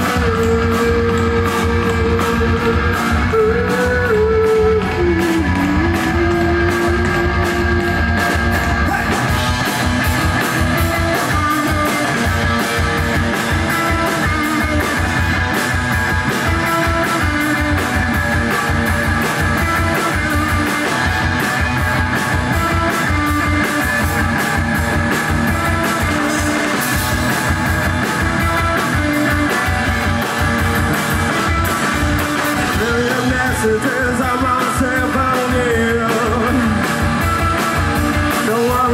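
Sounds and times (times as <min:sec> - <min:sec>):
person singing: 0:00.0 - 0:07.7, 0:32.6 - 0:36.9, 0:38.3 - 0:38.9
drum kit fast beat: 0:00.0 - 0:38.9
electric guitar: 0:00.0 - 0:38.9.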